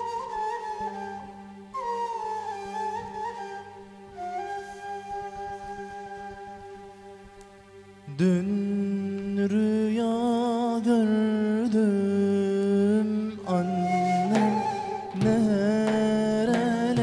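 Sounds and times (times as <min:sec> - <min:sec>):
low sustained accompaniment: 0:00.0 - 0:17.0
man singing a hymn: 0:08.1 - 0:17.0
ney flute note: 0:13.5 - 0:17.0.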